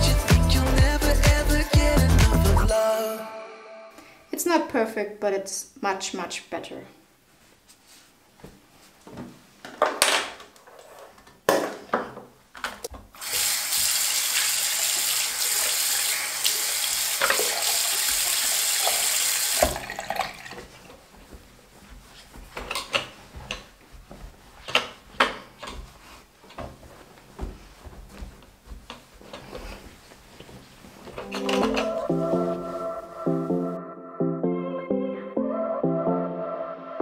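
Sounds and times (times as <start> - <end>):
tap running into sink: 16.4 - 20.7.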